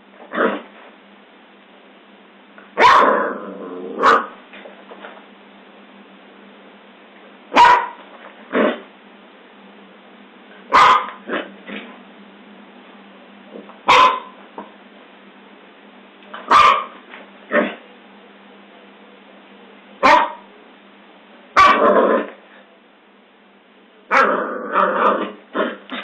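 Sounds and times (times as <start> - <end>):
dog barking: 2.8 - 3.3, 4.0 - 4.4, 7.5 - 8.0, 10.7 - 11.5, 13.9 - 14.4, 16.5 - 17.8, 20.0 - 20.5, 21.6 - 22.0, 24.1 - 24.3.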